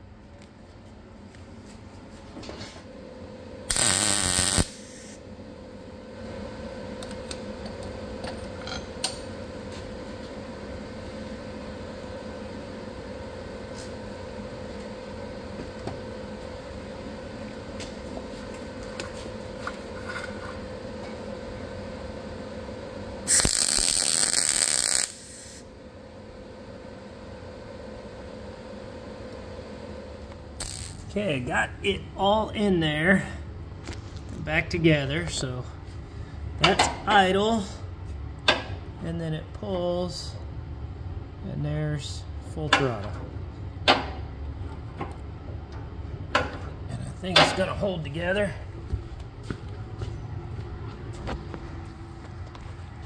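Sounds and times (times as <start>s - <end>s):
steady hum: 0.0s - 53.0s
welder arc crackling: 3.7s - 5.2s, 23.2s - 25.7s, 30.2s - 32.0s.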